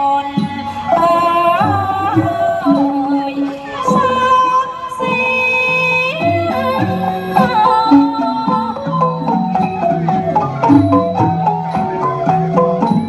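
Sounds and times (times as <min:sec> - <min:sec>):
woman singing long sliding notes: 0:00.0 - 0:09.6
traditional ensemble playing: 0:00.0 - 0:13.0.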